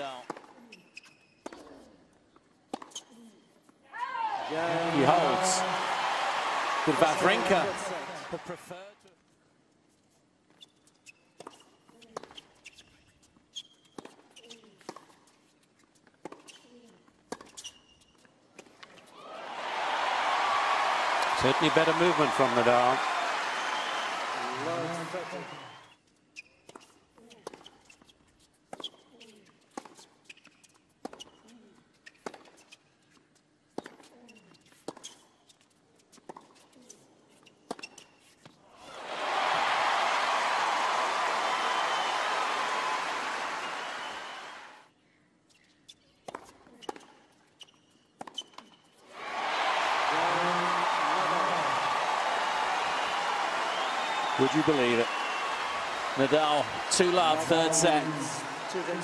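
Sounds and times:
shoes squeaking on court: 0.4s - 3.8s, 10.1s - 19.2s, 25.4s - 38.6s, 45.4s - 49.1s.

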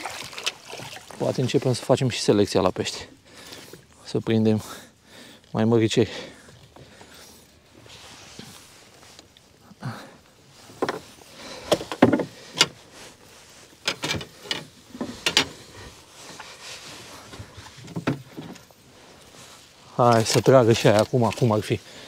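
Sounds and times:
handling knocks and rustles: 10.5s - 21.8s.

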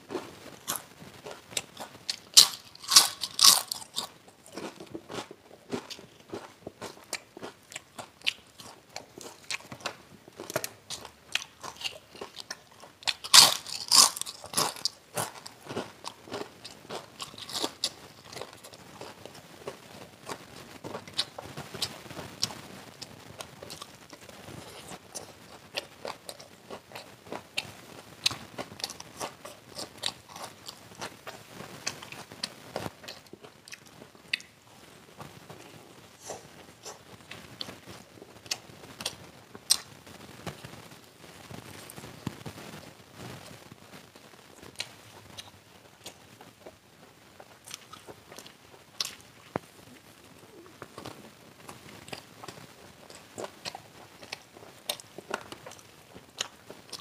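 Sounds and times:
crunching fried food: 0.0s - 57.0s.

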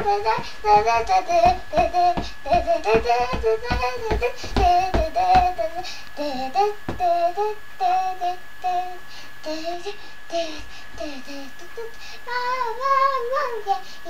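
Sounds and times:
thumping beat: 0.0s - 5.7s
high childlike singing voice: 0.0s - 13.9s.

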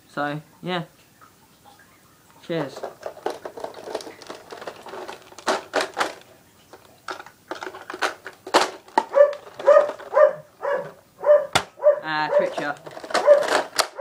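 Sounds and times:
dog barking: 9.0s - 14.0s.

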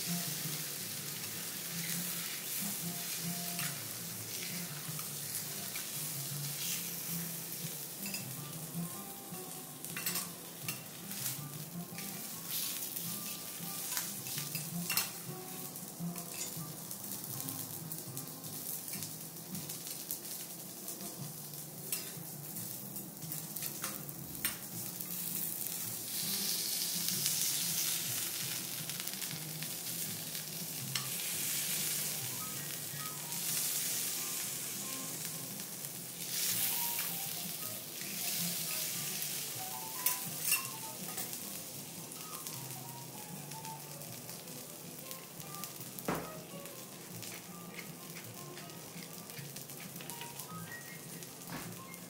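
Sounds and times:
steak sizzling on griddle: 0.0s - 52.0s
knife and fork clicking on griddle: 9.9s - 11.3s, 47.2s - 50.3s.

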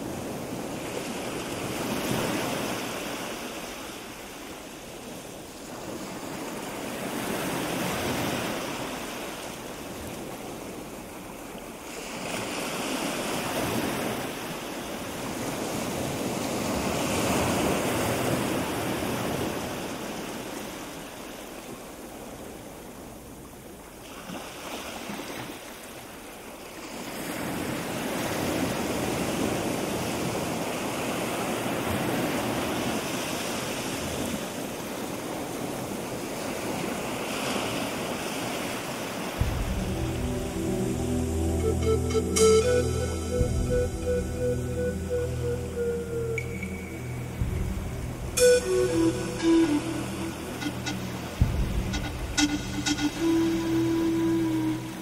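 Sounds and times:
wind gusting on microphone: 39.3s - 41.6s, 43.4s - 55.0s.

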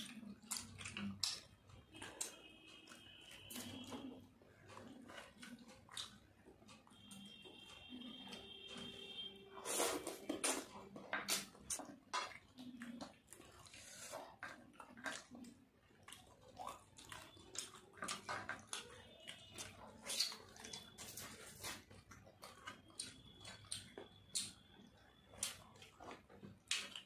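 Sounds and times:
wet chewing and lip-smacking: 0.0s - 27.0s.

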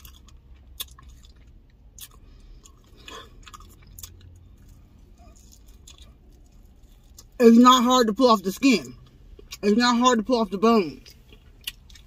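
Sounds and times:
close-up chewing: 0.0s - 7.4s, 11.0s - 12.0s.

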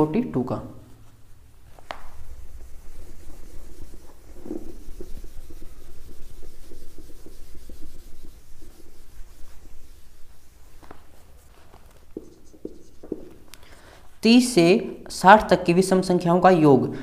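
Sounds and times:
hand rubbing whiteboard: 1.0s - 13.9s.

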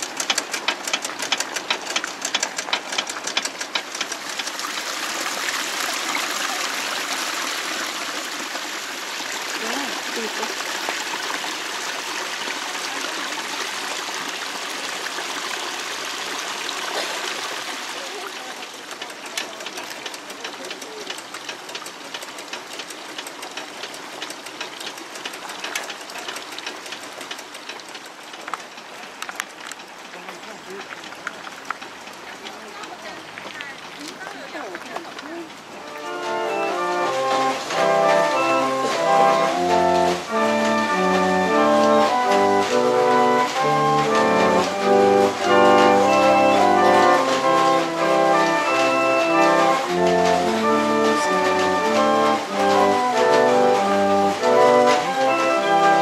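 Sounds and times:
rapid mechanical clicking: 0.0s - 4.9s, 18.3s - 33.1s
water rushing down stone channel: 0.0s - 56.0s.

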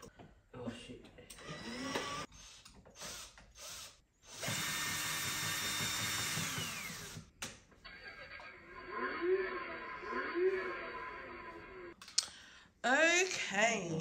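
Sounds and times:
small electric motor whirring: 1.4s - 7.3s.

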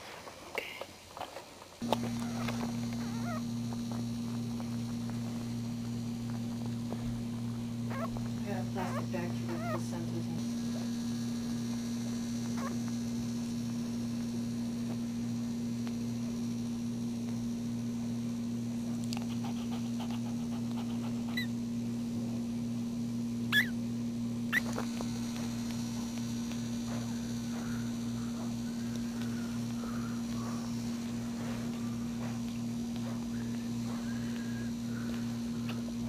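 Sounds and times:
low electrical hum: 0.0s - 36.0s
puppies squeaking: 2.1s - 3.5s, 7.9s - 10.0s, 20.7s - 21.5s, 23.5s - 23.8s, 24.5s - 24.8s.

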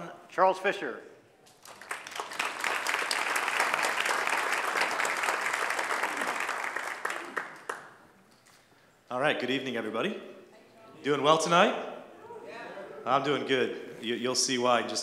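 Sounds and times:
audience applauding: 1.6s - 8.0s.

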